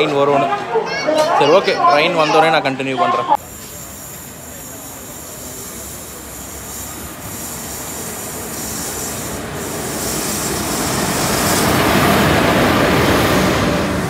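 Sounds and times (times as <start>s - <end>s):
train running noise: 3.1s - 14.0s.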